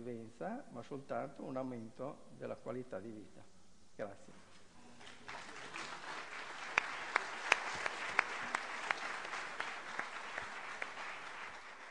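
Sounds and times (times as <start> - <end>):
audience applauding: 5.0 - 11.9.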